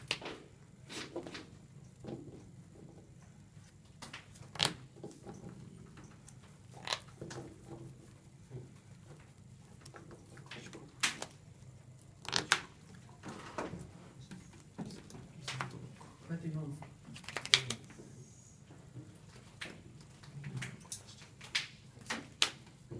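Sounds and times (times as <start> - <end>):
cards tapping and sliding: 4.0 - 5.3, 6.3 - 8.0, 12.0 - 13.4.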